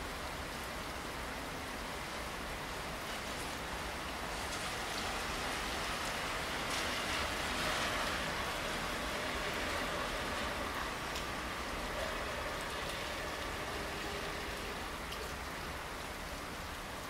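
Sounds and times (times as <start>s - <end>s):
steady rainfall hiss: 0.0s - 17.0s
raindrops ticking: 5.9s - 16.9s.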